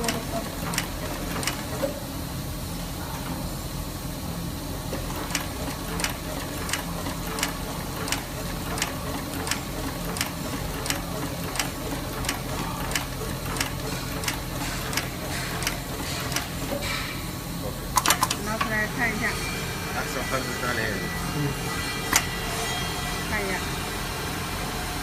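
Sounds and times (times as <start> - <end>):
sewing machine hum: 0.0 - 1.9, 4.8 - 16.7
sharp regular machine clicks: 0.0 - 1.9, 4.9 - 16.9, 17.9 - 18.8.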